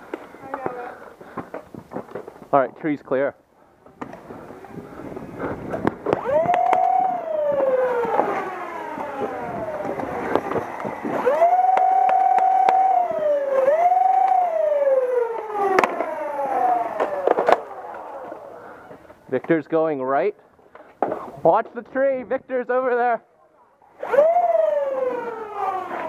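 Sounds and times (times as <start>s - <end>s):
dart blaster motors whining: 4.0s - 18.6s, 23.9s - 26.0s.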